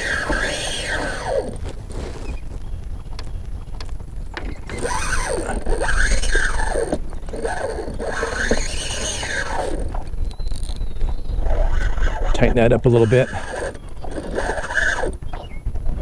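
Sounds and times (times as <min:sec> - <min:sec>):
fishing reel drag buzzing: 0:00.0 - 0:01.7, 0:04.5 - 0:15.3.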